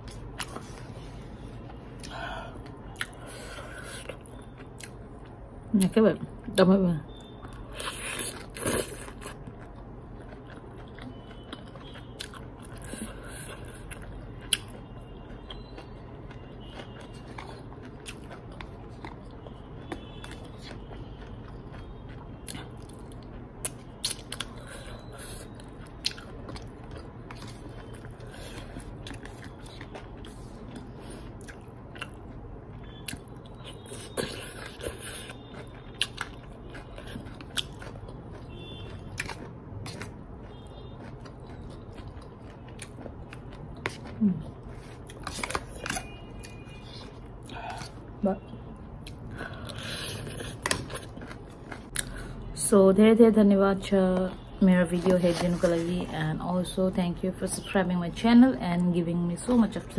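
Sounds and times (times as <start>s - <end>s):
chewing noodles: 7.1s - 48.0s, 49.0s - 52.4s.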